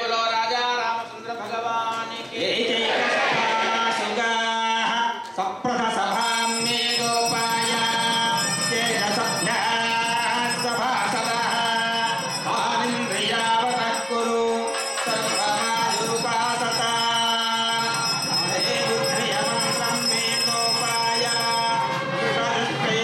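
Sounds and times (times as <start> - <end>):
small bells jingling: 6.1 - 22.0.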